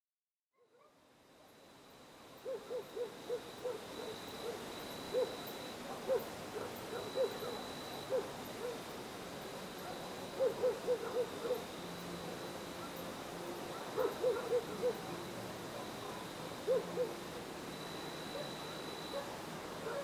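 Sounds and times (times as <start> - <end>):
outdoor hiss: 1.0 - 20.0
high insect trill: 1.4 - 20.0
distant dogs barking: 2.4 - 8.9, 9.7 - 11.8, 12.7 - 17.3, 18.2 - 20.0.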